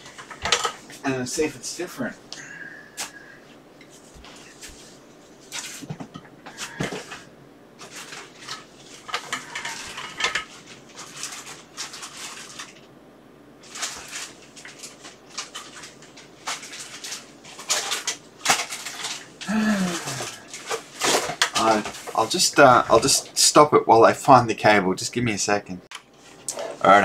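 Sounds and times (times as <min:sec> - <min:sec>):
plastic and metal items clattering: 0:00.0 - 0:00.8, 0:05.5 - 0:12.8, 0:13.6 - 0:23.4.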